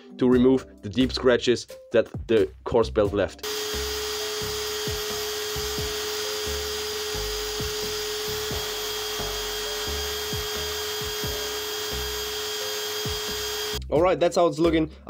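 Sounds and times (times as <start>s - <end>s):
grinder motor whine: 3.4s - 13.8s.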